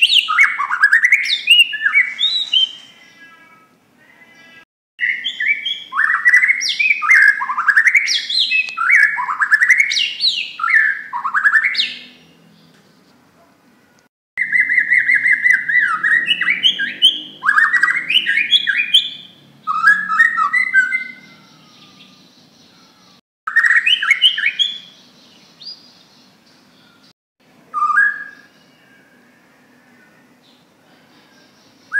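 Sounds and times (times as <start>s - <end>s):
bird singing whistled notes: 0.0s - 3.0s, 5.0s - 12.2s, 14.4s - 22.8s, 23.5s - 27.0s, 27.7s - 29.4s.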